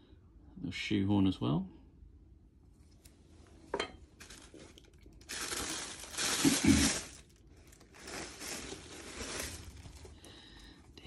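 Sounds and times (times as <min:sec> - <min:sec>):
cloth rustling: 0:04.2 - 0:10.2
tissue paper crinkling: 0:04.2 - 0:10.7.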